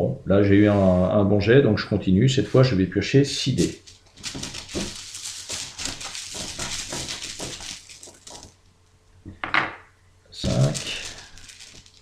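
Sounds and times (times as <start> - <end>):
dice rattling in hand: 3.6 - 8.6, 10.5 - 12.0.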